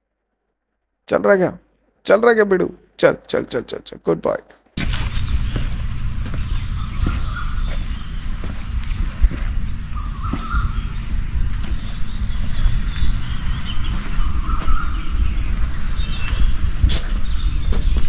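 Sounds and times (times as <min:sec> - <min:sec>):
insects chorus: 0:04.8 - 0:18.0
low rumble: 0:04.8 - 0:18.0.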